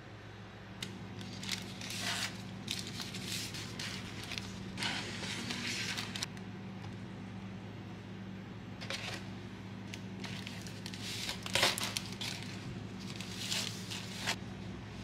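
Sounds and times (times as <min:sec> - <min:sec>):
plastic wrap crinkling: 0:01.2 - 0:06.3, 0:10.2 - 0:14.4.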